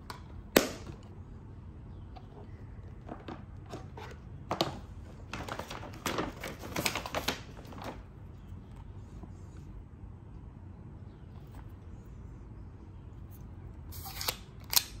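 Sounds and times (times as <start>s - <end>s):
paper bag crackling: 3.8s - 8.2s.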